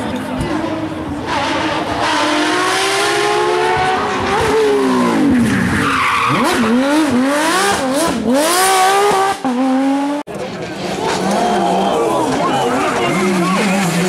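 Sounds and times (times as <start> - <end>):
race car engine at full throttle: 0.0 - 14.0.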